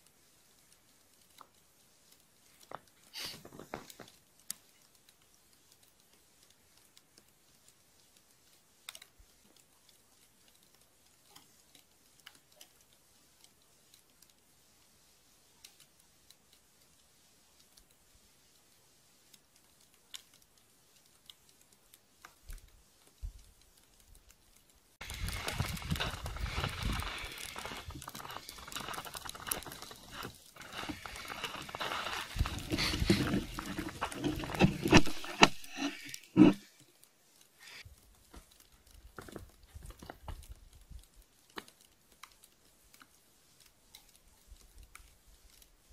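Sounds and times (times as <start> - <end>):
faint irregular clicks: 0.0 - 45.9
footsteps crunching through snow: 25.0 - 36.7.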